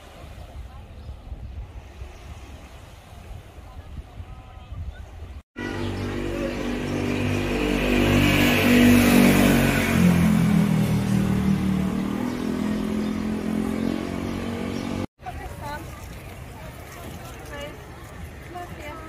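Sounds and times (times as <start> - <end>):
motorbike engine passing: 5.6 - 15.1.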